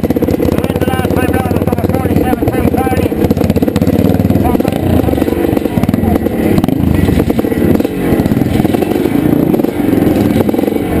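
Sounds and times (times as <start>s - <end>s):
two-stroke motorcycle engine revving: 0.0s - 11.0s.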